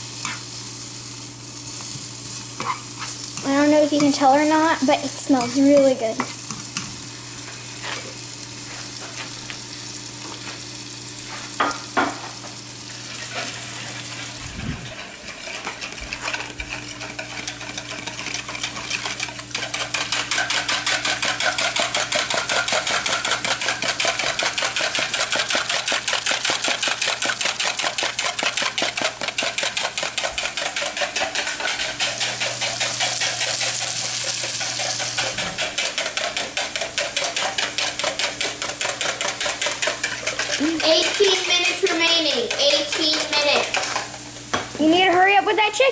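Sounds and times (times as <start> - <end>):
onions sizzling in a frying pan: 0.0 - 42.3
spatula knocking on pan: 11.6 - 12.5, 35.4 - 44.7.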